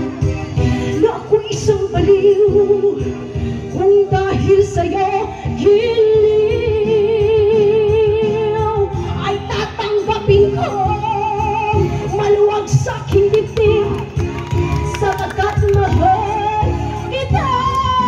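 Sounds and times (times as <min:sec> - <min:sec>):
backing music: 0:00.0 - 0:18.0
woman singing into microphone: 0:00.0 - 0:18.0.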